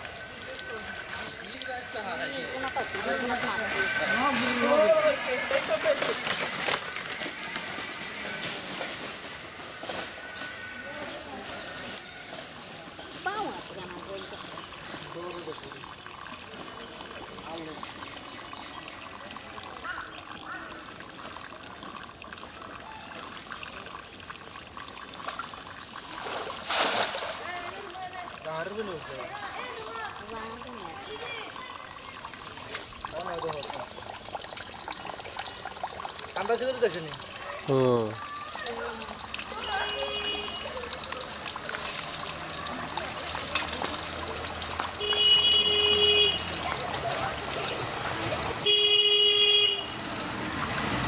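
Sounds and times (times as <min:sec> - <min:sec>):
water dripping onto pond: 0:00.0 - 0:51.0
vehicle horn: 0:39.6 - 0:40.9, 0:45.0 - 0:46.6, 0:48.6 - 0:50.0.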